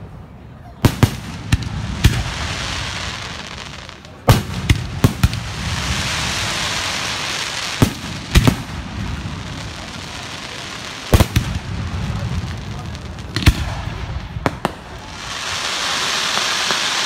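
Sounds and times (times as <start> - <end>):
fireworks bangs: 0.8 - 17.0
hiss of sparks: 15.3 - 17.0.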